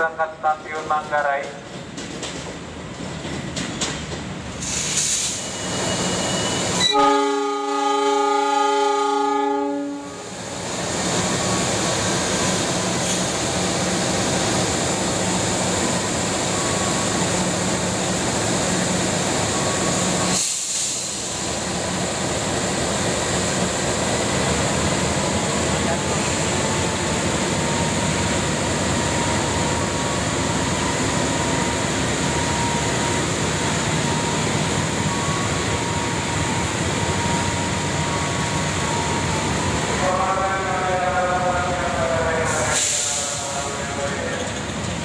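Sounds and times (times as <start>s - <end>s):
train horn blast: 6.8s - 10.3s.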